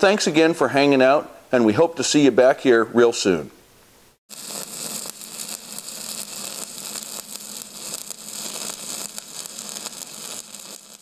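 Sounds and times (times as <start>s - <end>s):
welding arc crackling hiss: 4.3s - 11.0s.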